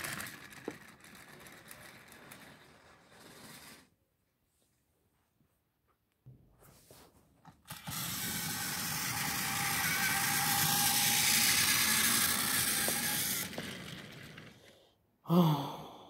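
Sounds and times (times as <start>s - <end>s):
toy train motor whirring: 0.0s - 3.9s, 7.6s - 14.8s
toy train wheels clattering on track: 0.0s - 3.9s, 7.7s - 14.7s.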